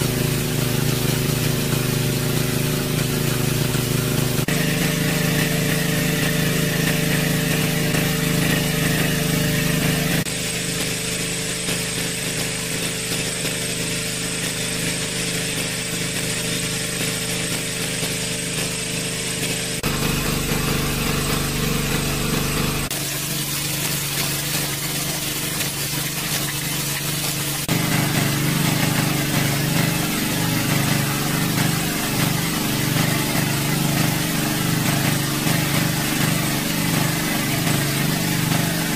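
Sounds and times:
small petrol engine water pump running: 0:00.0 - 0:38.9
water gushing from a pipe: 0:00.0 - 0:38.9.

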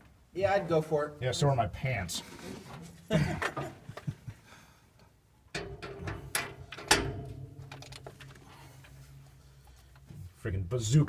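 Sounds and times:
metallic knocks and clunks: 0:05.5 - 0:09.8
steady low hum: 0:05.5 - 0:10.8.

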